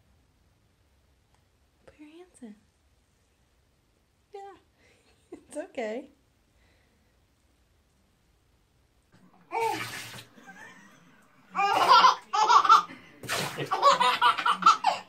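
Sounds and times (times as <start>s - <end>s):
baby laughing: 9.4s - 15.0s
water pouring and splashing: 9.5s - 10.3s, 13.2s - 13.9s.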